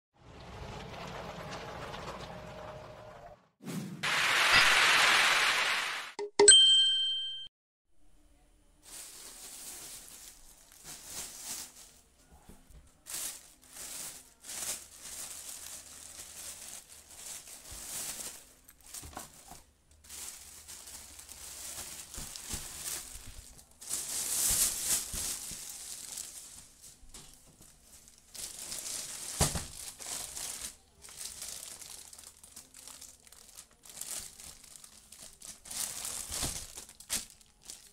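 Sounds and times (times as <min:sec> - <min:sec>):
bell-like ding: 0:06.2 - 0:07.5
plastic crinkling and rustling: 0:08.8 - 0:37.9.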